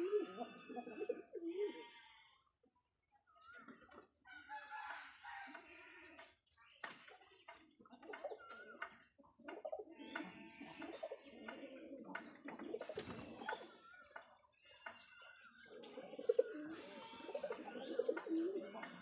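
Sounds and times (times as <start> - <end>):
pigeons cooing: 0.0 - 2.0, 7.6 - 19.0.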